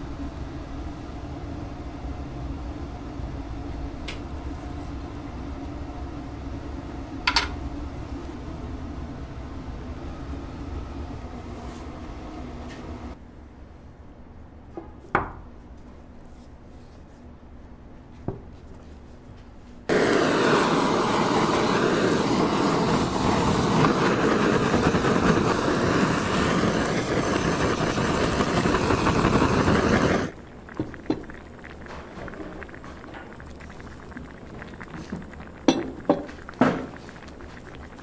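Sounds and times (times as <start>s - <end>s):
blowtorch hissing: 19.9s - 38.0s.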